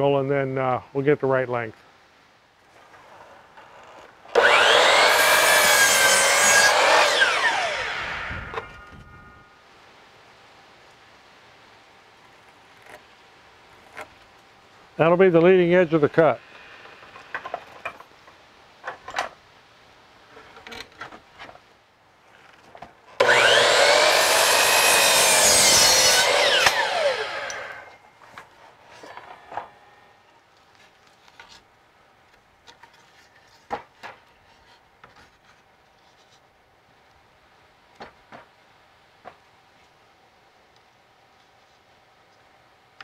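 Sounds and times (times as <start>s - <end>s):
miter saw cutting wood: 4.3s - 8.9s, 23.2s - 28.0s
saw blade winding down whine: 4.3s - 9.0s, 23.2s - 28.0s.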